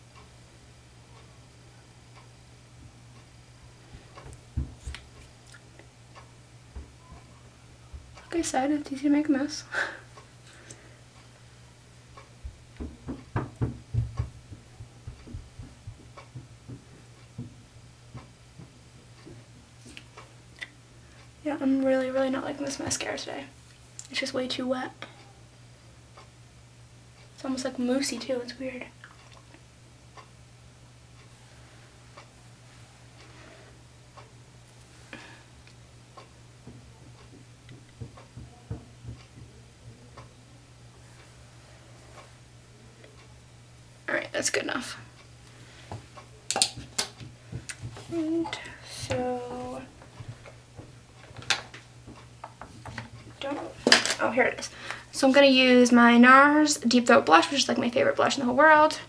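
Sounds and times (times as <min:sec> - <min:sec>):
low steady hum: 0:00.0 - 0:59.0
soft knocks and bumps: 0:04.0 - 0:05.0, 0:12.4 - 0:19.5, 0:36.6 - 0:40.1, 0:46.8 - 0:51.5.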